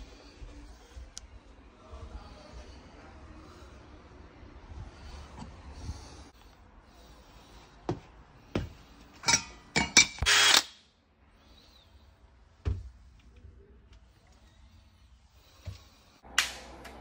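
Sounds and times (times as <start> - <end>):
cordless drill bursts: 10.2 - 10.8.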